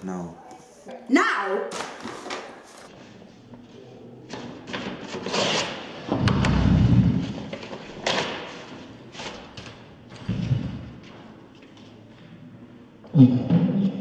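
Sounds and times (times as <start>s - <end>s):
paper tearing: 5.0s - 5.8s.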